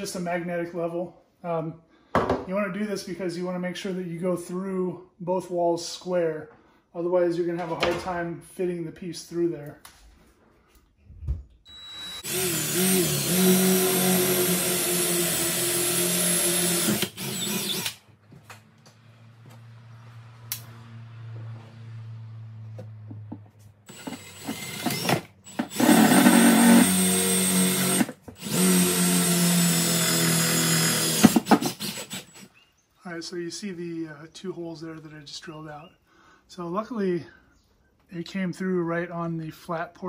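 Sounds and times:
cordless drill boring through wall: 11.7s - 18.0s, 23.9s - 32.5s.

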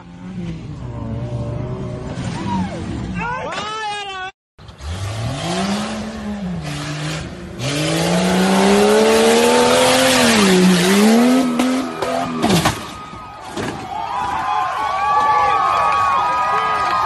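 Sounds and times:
tyre and dirt noise: 0.0s - 17.0s
engine revving hard: 4.7s - 12.3s.

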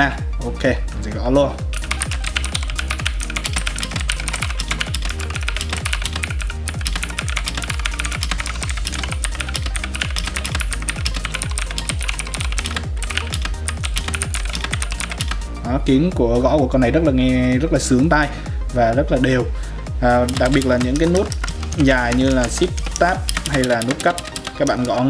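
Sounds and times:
background music with steady bass: 0.0s - 25.0s
clicky keyboard typing: 1.7s - 15.4s, 20.3s - 25.0s.

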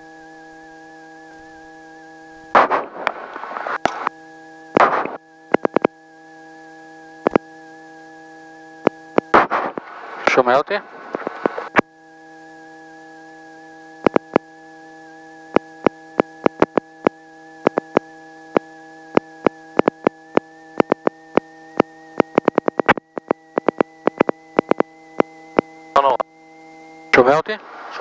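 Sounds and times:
intercom electronic hum and whine: 0.0s - 28.0s.

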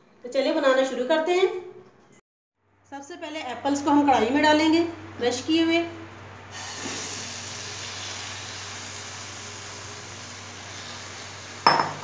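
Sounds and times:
apples sizzling in a pan: 6.5s - 11.8s.

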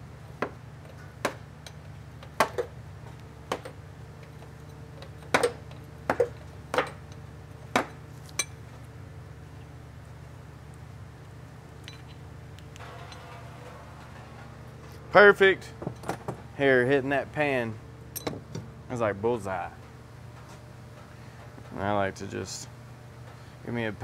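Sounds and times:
metal tools clinking on metal: 18.1s - 18.4s.

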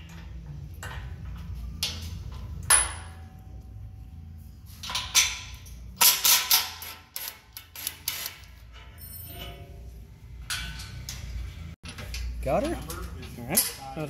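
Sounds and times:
electric impact wrench rattling: 6.0s - 8.8s.

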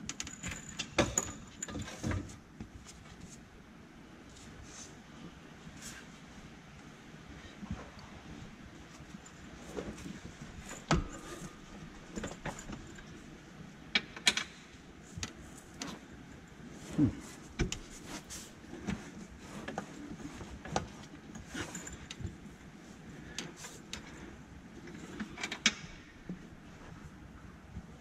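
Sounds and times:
metallic clinks and knocks: 0.1s - 2.3s.

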